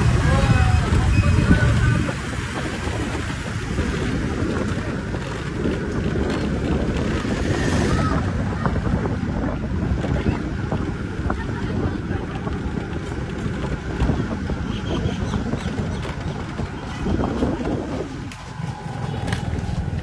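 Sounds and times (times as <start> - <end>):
wind buffeting on microphone: 0.0 - 20.0.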